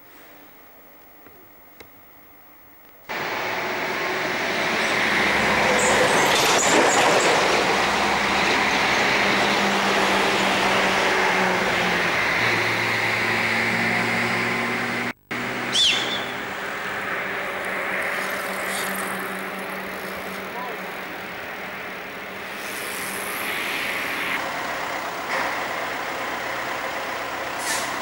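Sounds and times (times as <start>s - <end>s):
train rumbling: 3.1s - 28.0s
low hum: 7.9s - 26.8s.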